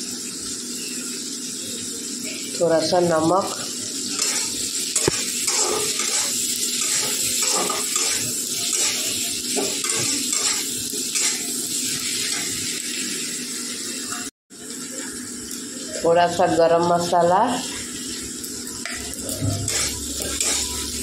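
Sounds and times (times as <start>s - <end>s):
masala sizzling in a pan: 0.0s - 21.0s
metal spatula scraping pan: 4.2s - 9.0s, 19.3s - 21.0s.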